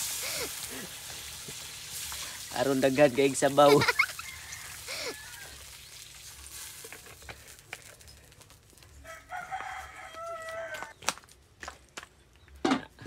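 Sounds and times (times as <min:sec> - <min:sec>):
rooster crowing: 0:04.0 - 0:05.7, 0:09.0 - 0:11.0.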